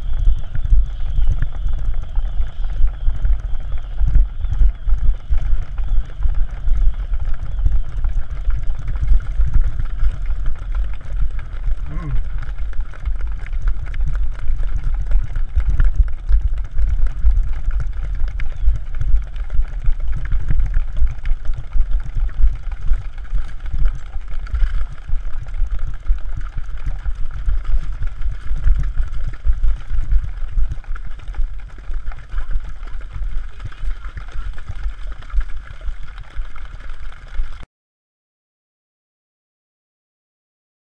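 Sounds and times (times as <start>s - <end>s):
wind buffeting microphone: 0.0s - 35.0s
hooves splashing in water: 26.7s - 37.6s.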